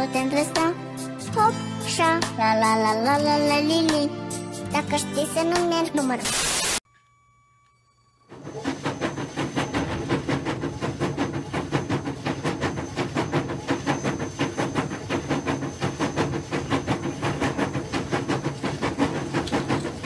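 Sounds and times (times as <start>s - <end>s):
wheels clicking over track joints: 8.5s - 20.0s.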